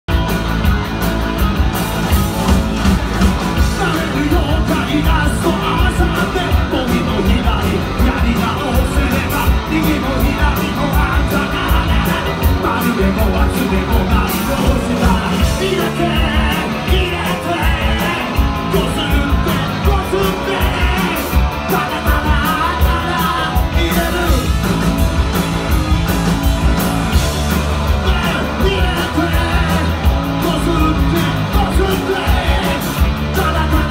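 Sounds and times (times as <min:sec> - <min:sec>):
drum kit steady beat: 0:00.1 - 0:33.9
electric guitars: 0:00.1 - 0:33.9
vocalist singing into microphone: 0:03.6 - 0:24.5, 0:27.9 - 0:33.9.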